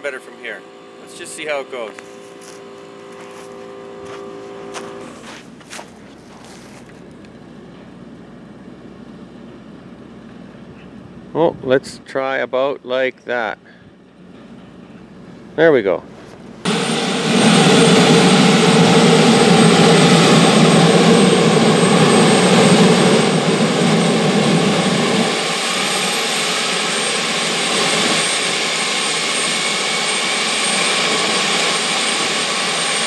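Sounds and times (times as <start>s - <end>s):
jet engine spinning up: 0.0s - 5.4s, 16.6s - 33.0s.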